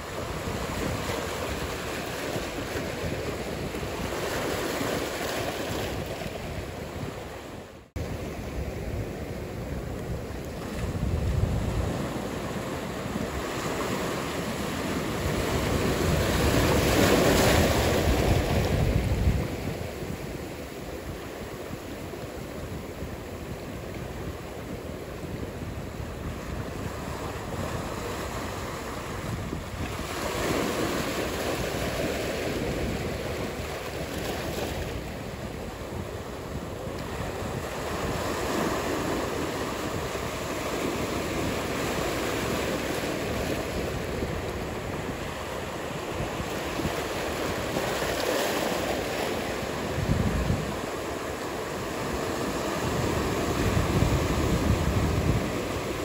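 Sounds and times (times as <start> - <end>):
ocean waves breaking: 0.0 - 56.0.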